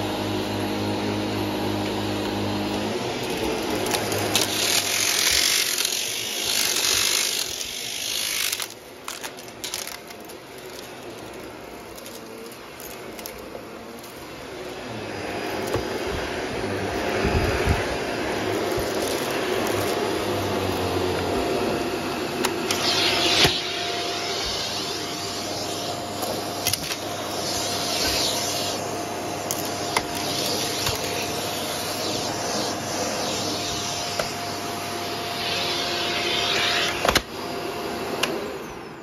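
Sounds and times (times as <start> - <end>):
vacuum cleaner on carpet: 0.0 - 39.0
debris clicking in vacuum: 3.2 - 14.3.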